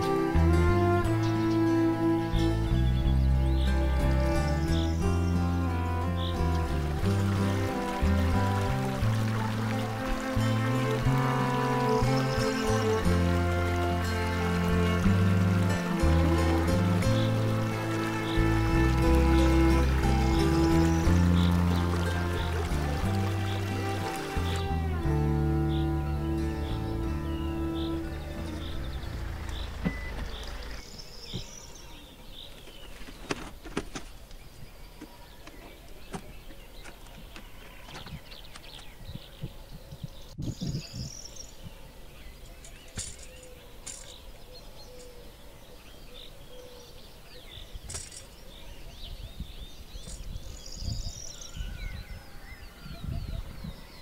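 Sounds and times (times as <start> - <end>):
background music: 0.0 - 30.4
small birds chirping: 0.0 - 54.0
camping gear knocking and clattering: 32.5 - 34.4, 42.6 - 44.2, 47.9 - 48.4.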